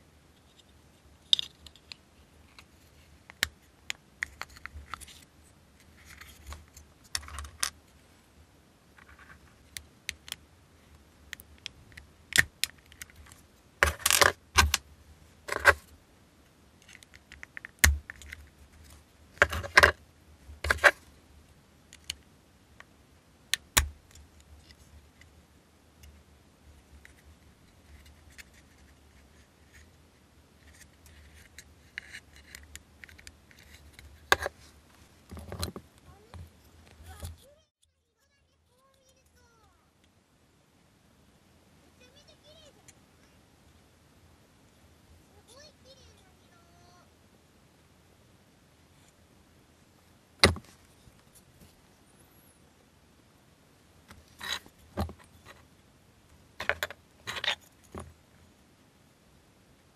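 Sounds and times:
plastic parts clicking and rattling: 4.2s - 5.2s, 5.8s - 7.8s, 11.6s - 14.8s, 15.5s - 15.9s, 16.8s - 20.0s, 20.6s - 21.0s, 30.6s - 34.6s, 35.3s - 37.5s, 56.6s - 58.1s.

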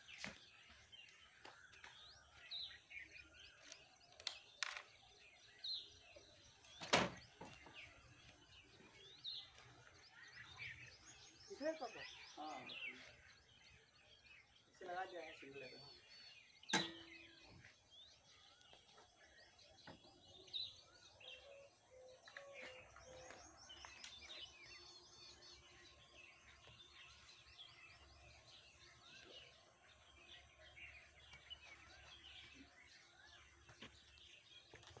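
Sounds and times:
outdoor background noise: 0.0s - 35.0s
small birds chirping: 0.0s - 35.0s.

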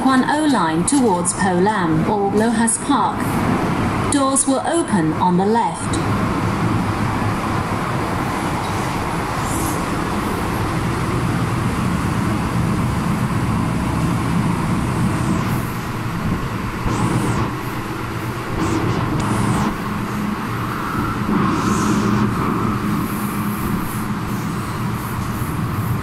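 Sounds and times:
train wheels rumbling on rail: 2.0s - 26.0s
low motor hum: 5.8s - 26.0s
high-pitched squeals: 18.4s - 25.0s.

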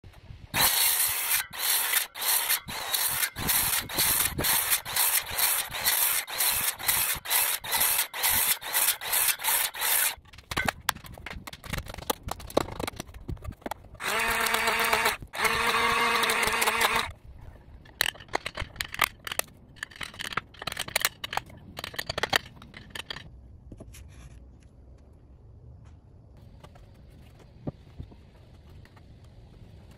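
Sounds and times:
circular saw cutting wood: 0.6s - 10.2s, 14.0s - 17.1s
motor running steadily: 14.0s - 17.1s.

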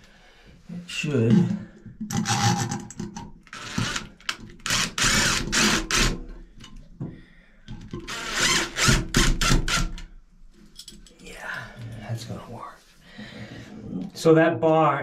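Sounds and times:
cordless drill driving screws: 2.1s - 2.9s, 3.5s - 6.3s, 7.9s - 10.1s.

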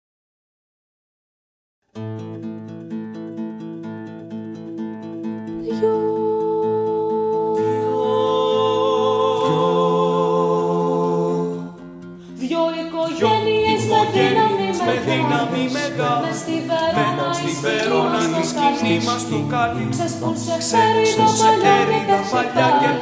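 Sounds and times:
three-part choral singing: 5.7s - 23.0s.

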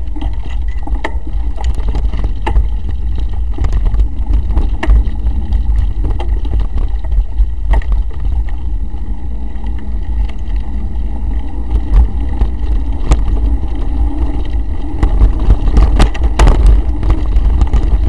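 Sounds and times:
bike rattling over bumps: 0.0s - 18.0s
wind and vibration rumble: 0.0s - 18.0s.

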